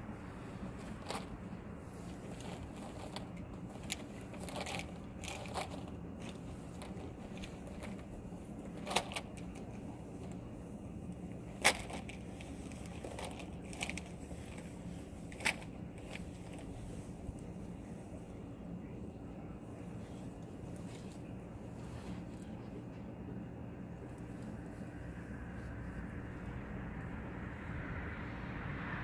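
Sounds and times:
low steady hum: 0.0s - 29.0s
plastic tubing clicking and crackling: 2.2s - 10.4s, 11.1s - 14.7s, 15.3s - 16.6s.

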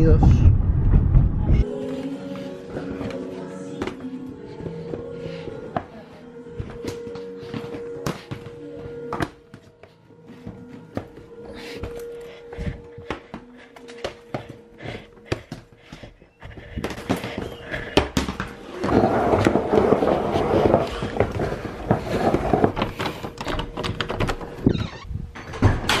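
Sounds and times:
suitcase wheels rattling on tiles: 13.9s - 24.7s.

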